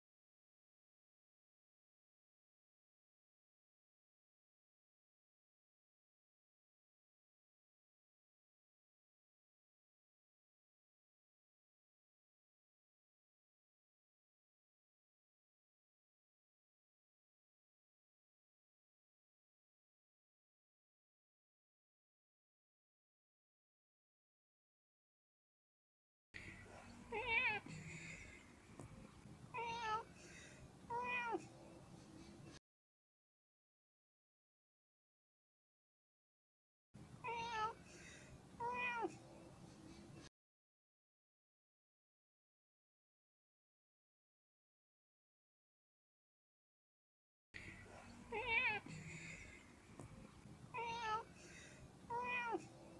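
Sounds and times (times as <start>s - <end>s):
cat meowing: 29.6s - 30.0s, 30.9s - 31.4s, 37.2s - 37.8s, 38.6s - 39.1s, 50.8s - 51.2s, 52.1s - 52.6s.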